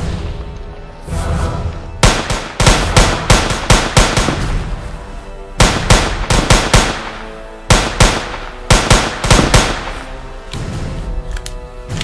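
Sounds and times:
tense film score: 0.0 - 12.0
handgun gunshots: 5.6 - 10.2.

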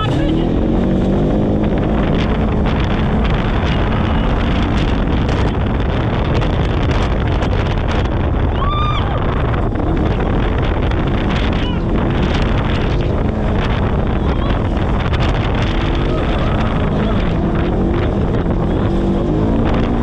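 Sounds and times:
vehicle engine running: 0.0 - 20.0
wind noise on microphone: 0.0 - 20.0.

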